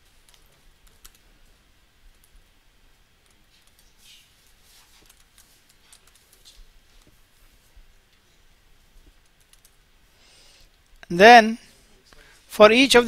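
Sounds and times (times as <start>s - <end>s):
computer keyboard keystrokes: 0.1s - 1.2s, 3.2s - 4.0s, 5.0s - 7.2s, 9.0s - 9.8s.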